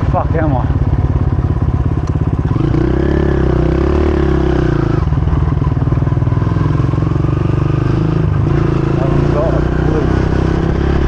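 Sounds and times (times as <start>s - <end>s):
motocross bike engine revving: 2.4s - 11.0s.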